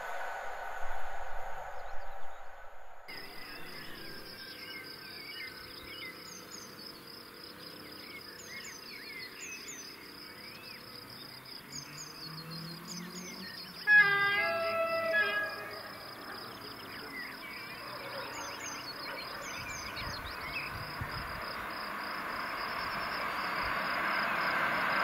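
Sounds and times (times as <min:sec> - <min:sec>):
sudden loud sound: 0:00.0 - 0:04.2
electric locomotive rumble: 0:00.0 - 0:04.4
birds chirping: 0:00.0 - 0:25.0
insect trill: 0:03.1 - 0:25.0.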